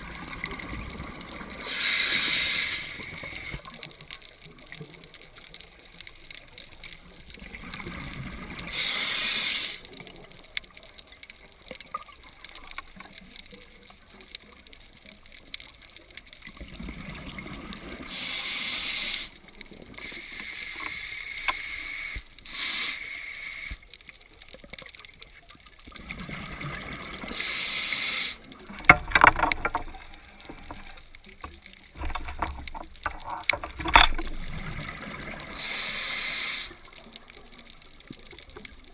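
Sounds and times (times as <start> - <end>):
bubbling gurgle of exhaled air: 0.0 - 3.8, 16.5 - 22.7, 25.8 - 38.9
regulator hissing inhalations: 1.6 - 3.7, 8.7 - 10.0, 18.0 - 19.4, 20.0 - 23.9, 27.2 - 28.5, 35.5 - 36.9.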